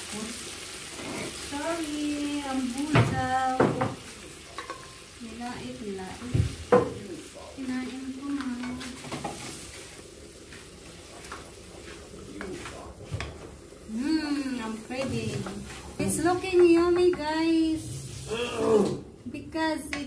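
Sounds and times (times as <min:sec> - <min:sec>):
stew sizzling in frying pan: 0:00.0 - 0:20.0
wooden spoon knocking on pan: 0:02.8 - 0:04.0, 0:06.2 - 0:07.0, 0:16.4 - 0:17.4.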